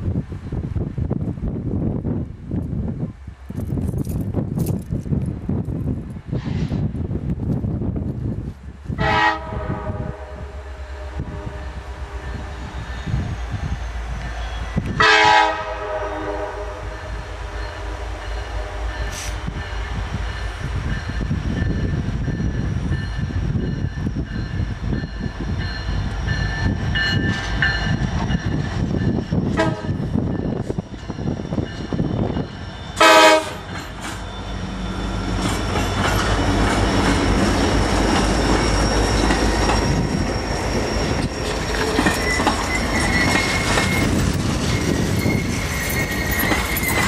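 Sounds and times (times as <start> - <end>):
train rumble: 0.0 - 47.0
locomotive air horn blasts: 9.0 - 12.6, 14.9 - 19.5, 29.6 - 30.0, 33.0 - 33.7.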